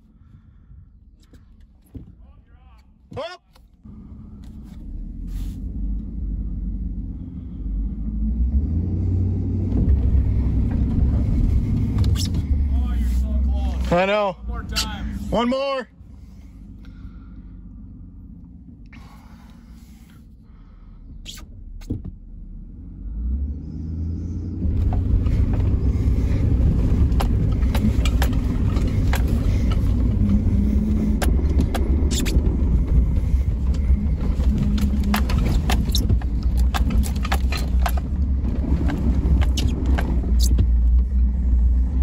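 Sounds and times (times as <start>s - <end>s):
truck engine and tyres rumbling: 0.0s - 42.0s
knocks and rattles in truck cab: 1.3s - 2.4s, 24.7s - 41.0s.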